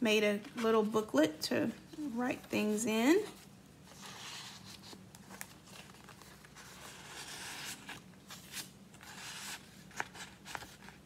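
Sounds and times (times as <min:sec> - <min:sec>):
paper sliding and rustling: 0:03.9 - 0:11.0.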